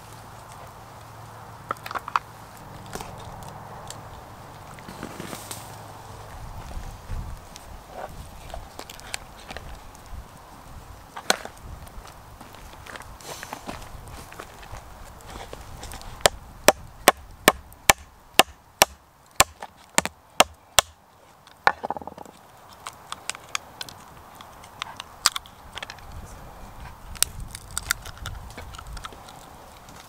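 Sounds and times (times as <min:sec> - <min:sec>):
light clicks and cracks: 0:00.0 - 0:05.6, 0:08.4 - 0:10.1, 0:21.1 - 0:26.2, 0:27.1 - 0:30.0
sharp knocks on wood: 0:21.7 - 0:22.3.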